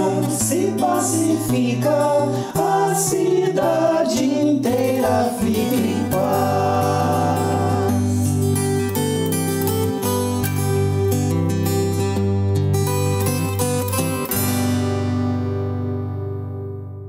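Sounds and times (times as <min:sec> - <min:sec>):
voices singing together: 0:00.0 - 0:08.8
strummed acoustic guitar: 0:00.0 - 0:17.0.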